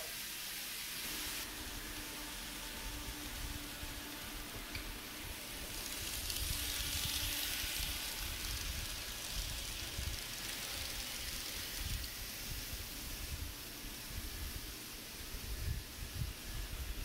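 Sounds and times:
model train wheels on rails: 0.0s - 17.0s.

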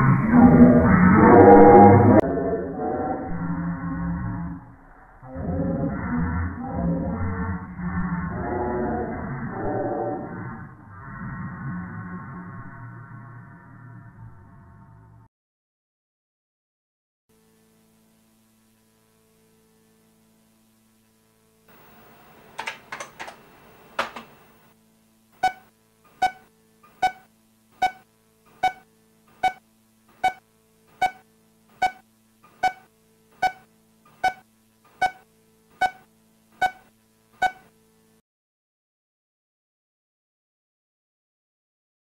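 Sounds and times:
faint electronic hum: 17.3s - 38.2s
sharp clicks: 22.4s - 24.4s
repeating electronic beep: 25.4s - 28.0s, 28.6s - 29.6s, 30.2s - 30.4s, 31.0s - 31.2s, 31.8s - 34.4s, 35.0s - 35.2s, 35.8s - 37.7s.

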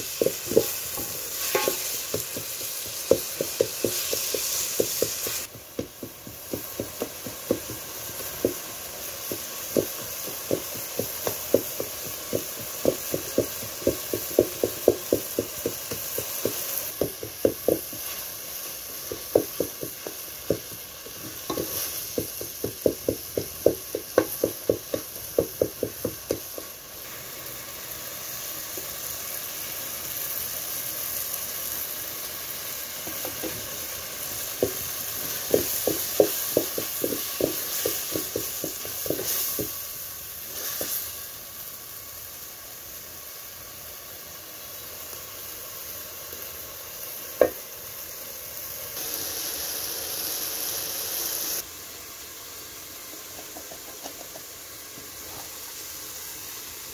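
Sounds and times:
vegetables sizzling in a pot: 0.0s - 56.9s
wooden spoon knocking on a pot: 0.1s - 18.1s, 19.0s - 26.7s, 34.6s - 34.8s, 35.4s - 39.8s, 53.4s - 54.5s.

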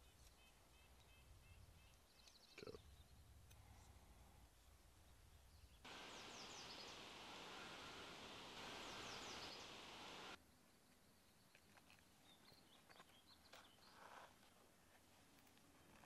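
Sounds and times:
outdoor ambient hiss: 0.0s - 16.0s
bird chirps: 5.6s - 10.4s.

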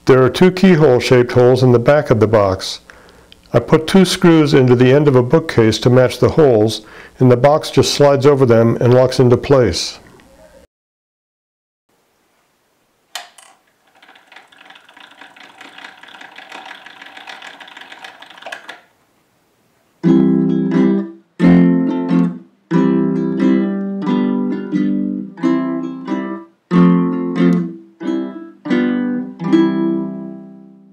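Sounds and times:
mechanism click: 13.1s - 18.9s
fast whirring gear rattle: 13.4s - 18.9s.

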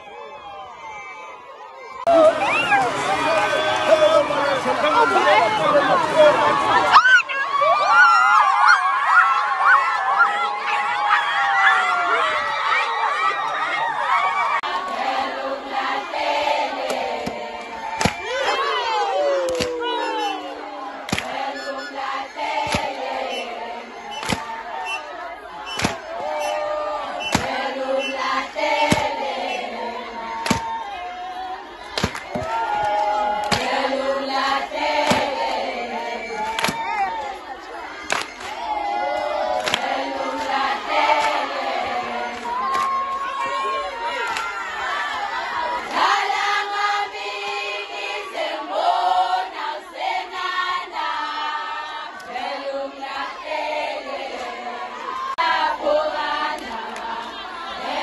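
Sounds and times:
group of voices singing: 14.4s - 58.0s.

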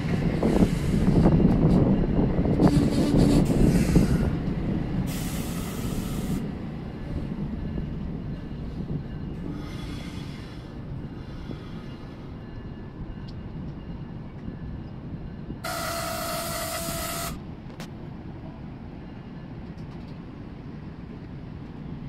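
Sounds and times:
train rumbling: 0.0s - 22.0s
train horn blast: 2.6s - 3.5s, 15.6s - 17.4s.

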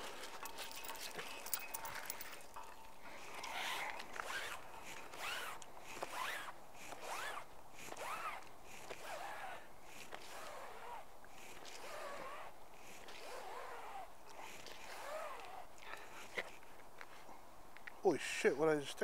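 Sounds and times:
rope rubbing over metal railing: 3.3s - 16.6s.

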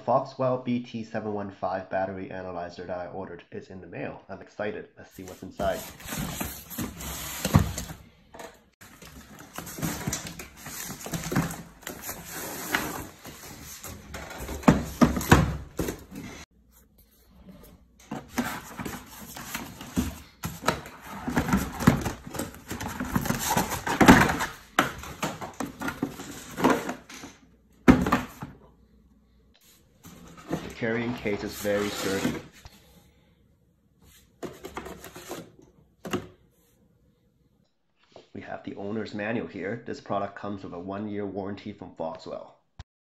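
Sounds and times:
cardboard rustling and scraping: 5.2s - 8.0s, 8.8s - 27.1s, 29.6s - 32.6s, 34.1s - 36.2s.

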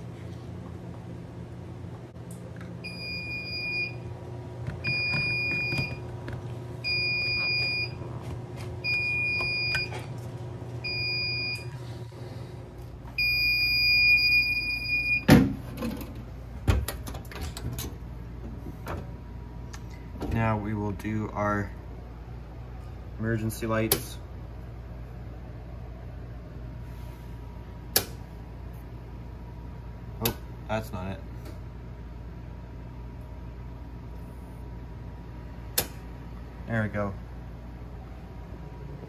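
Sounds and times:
high-pitched alarm beeps: 2.8s - 4.0s, 4.8s - 6.0s, 6.8s - 8.0s, 8.8s - 10.0s, 10.8s - 11.7s, 13.2s - 15.3s.

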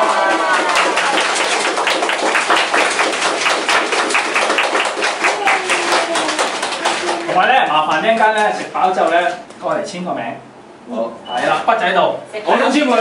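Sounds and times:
people clapping: 0.0s - 9.2s.

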